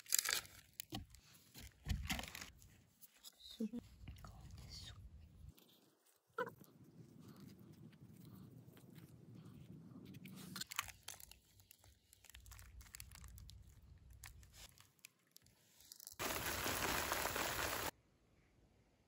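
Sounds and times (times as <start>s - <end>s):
water spraying hiss: 16.2s - 17.9s.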